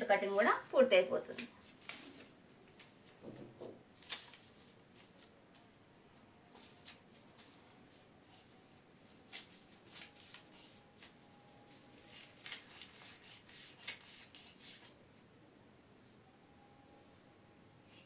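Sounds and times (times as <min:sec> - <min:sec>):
shears snipping cloth: 0:12.0 - 0:14.9.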